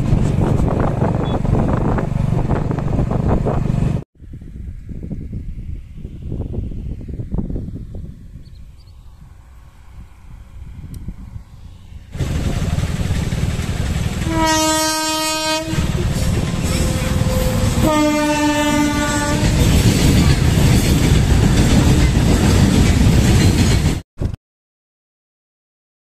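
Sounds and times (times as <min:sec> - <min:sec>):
train rumbling on rails: 0:00.0 - 0:05.2, 0:06.1 - 0:24.4
locomotive horn blasts: 0:14.2 - 0:19.7.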